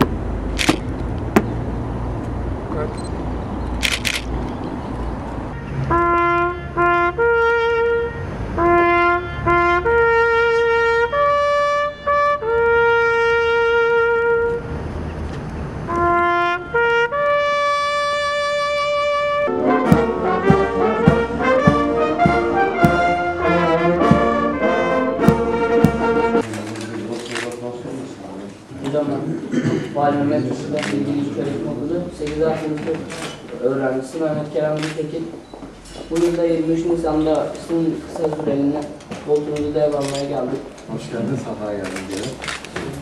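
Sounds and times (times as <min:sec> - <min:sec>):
solo bugle call: 0:05.6 - 0:14.7, 0:15.9 - 0:26.4
brass band with drums: 0:15.9 - 0:26.4.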